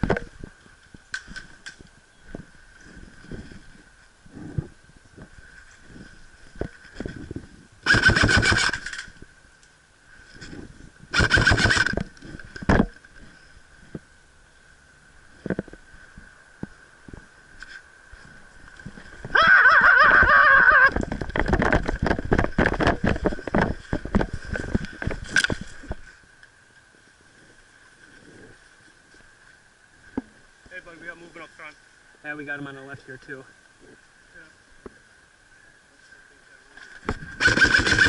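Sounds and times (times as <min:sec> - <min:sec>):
airsoft rifle bursts: 0:07.8 - 0:09.1, 0:11.1 - 0:11.9, 0:37.4 - 0:38.0.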